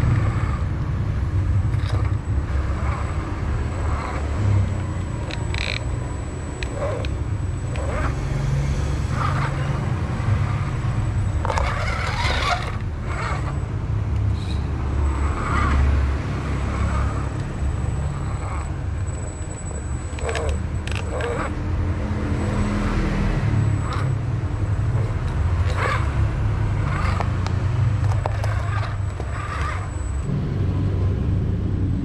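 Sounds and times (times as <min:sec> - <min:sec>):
electric motor and gears whirring: 0:00.0 - 0:32.0
tyres scraping concrete: 0:01.6 - 0:05.9, 0:06.6 - 0:30.2.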